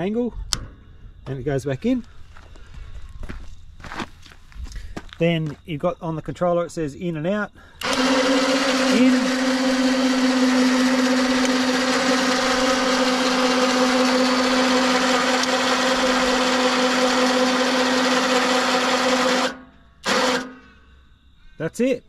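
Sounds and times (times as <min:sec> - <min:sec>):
electric winch motor whining: 0:07.8 - 0:20.8.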